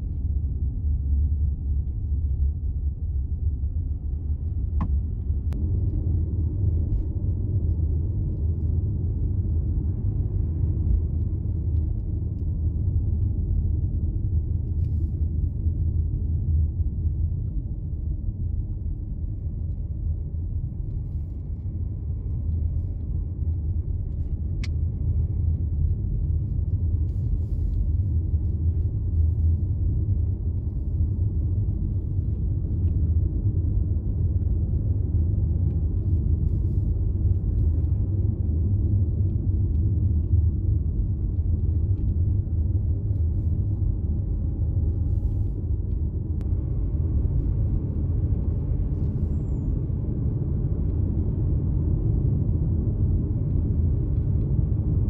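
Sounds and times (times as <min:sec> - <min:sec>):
steady low rumble: 0:00.0 - 0:55.0.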